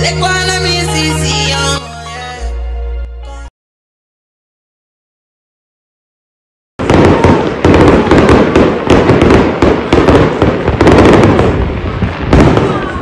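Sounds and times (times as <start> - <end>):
fireworks booming and crackling: 6.8 - 13.0.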